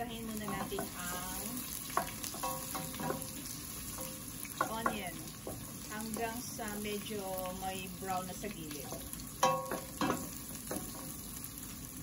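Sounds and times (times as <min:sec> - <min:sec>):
onions sizzling in hot oil: 0:00.0 - 0:12.0
wooden spoon knocking pot: 0:00.4 - 0:06.4.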